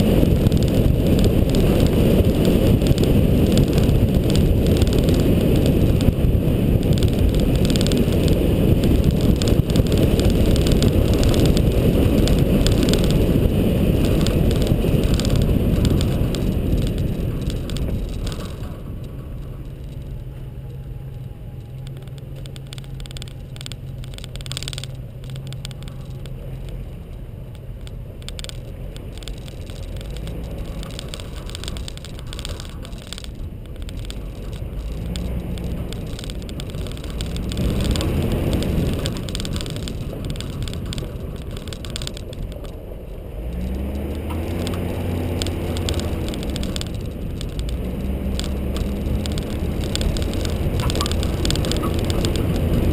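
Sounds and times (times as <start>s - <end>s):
car engine hum: 0.0s - 52.9s
tyres on gravel rumbling: 0.0s - 52.9s.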